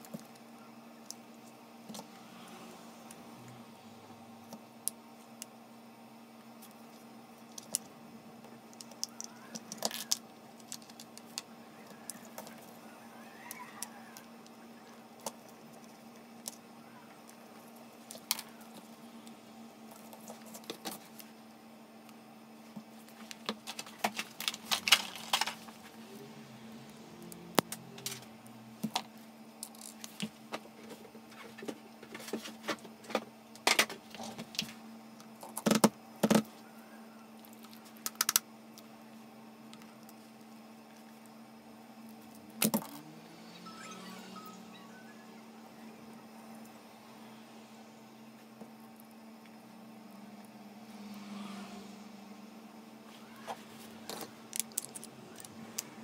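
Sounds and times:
faint steady hum: 0:00.0 - 0:56.0
metal and plastic parts clinking: 0:54.1 - 0:55.5.

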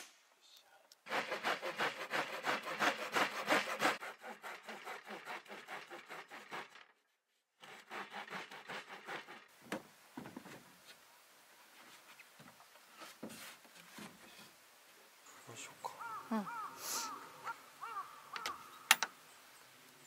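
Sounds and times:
handsaw cutting wood: 0:01.1 - 0:09.6.

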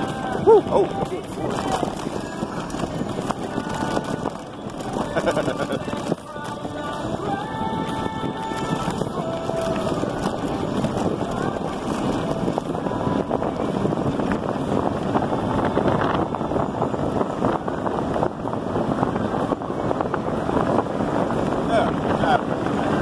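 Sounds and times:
tyres crunching over gravel: 0:00.0 - 0:14.9
wind buffeting microphone: 0:00.0 - 0:23.0.

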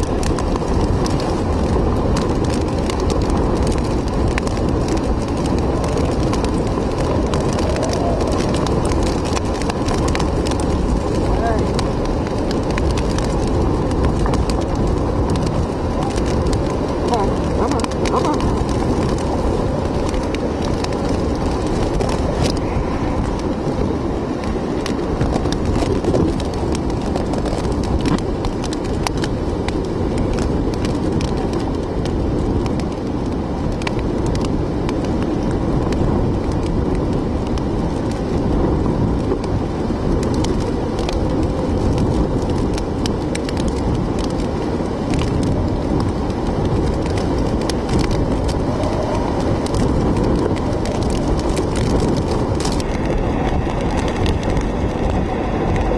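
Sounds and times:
heavy wind rumbling: 0:00.0 - 0:55.9
raindrops ticking on glass: 0:39.2 - 0:55.9.

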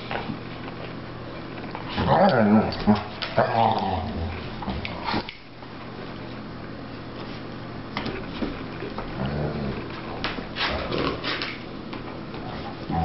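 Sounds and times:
dog growling: 0:01.9 - 0:05.1, 0:09.1 - 0:11.3, 0:12.4 - 0:13.0.

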